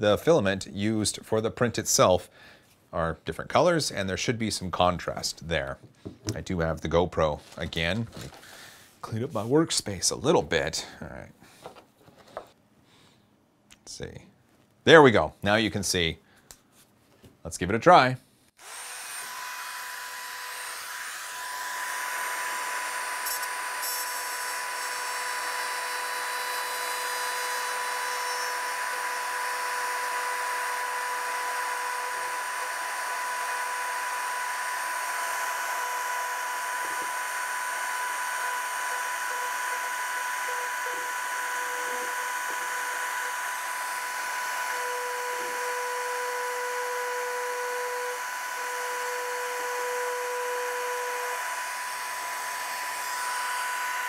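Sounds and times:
rotary tool whining: 18.6s - 54.0s.

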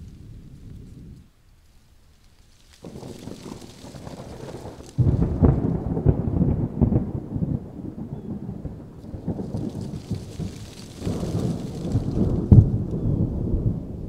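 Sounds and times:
steady rain: 0.0s - 14.0s
thunder rumbling: 2.7s - 14.0s
thunder crack: 2.8s - 14.0s.

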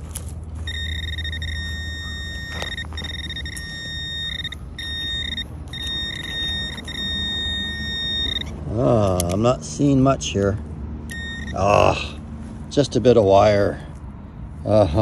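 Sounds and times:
high-pitched alert tone: 0.7s - 8.5s.

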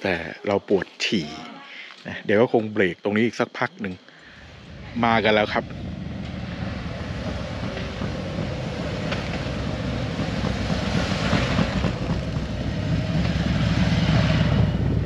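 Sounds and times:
motorcycle engines rumbling: 4.3s - 15.0s.

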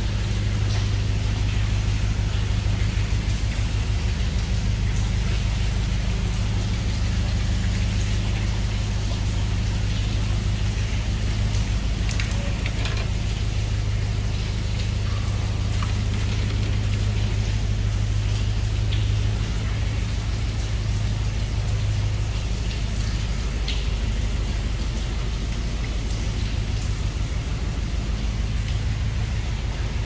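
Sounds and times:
water dripping and pouring: 0.0s - 30.0s.

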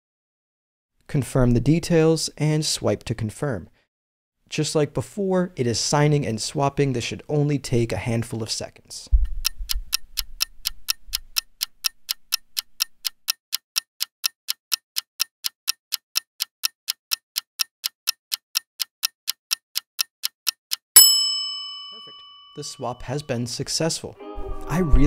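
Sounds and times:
clock ticking: 9.2s - 21.1s.

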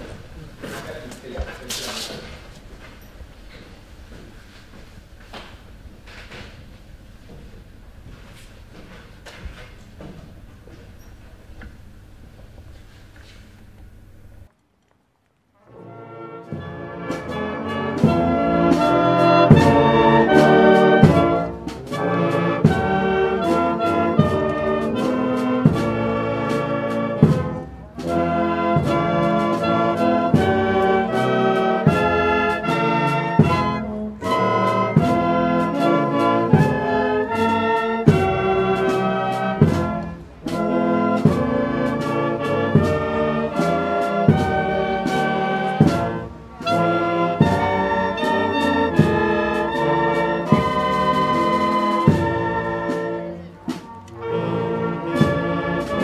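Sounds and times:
wind band brass playing: 15.6s - 53.5s, 54.2s - 56.0s
drum strokes: 16.4s - 56.0s.

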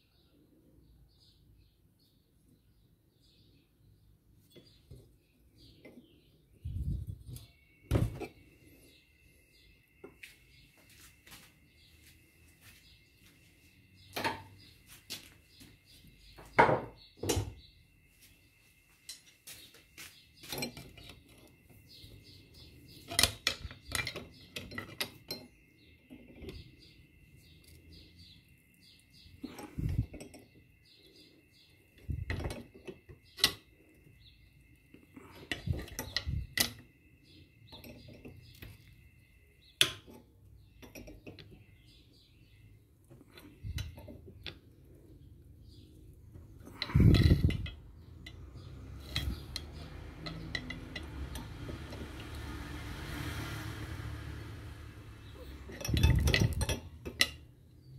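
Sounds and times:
metal clinks and knocks: 37.6s - 38.9s, 39.8s - 41.7s, 46.4s - 52.4s, 55.3s - 57.5s.

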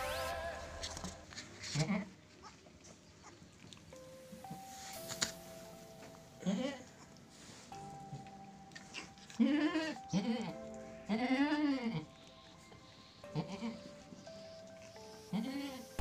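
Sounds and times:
background music with held notes: 0.0s - 1.6s, 3.8s - 16.0s
goat bleating: 9.4s - 12.2s, 13.3s - 13.9s, 15.3s - 15.8s.

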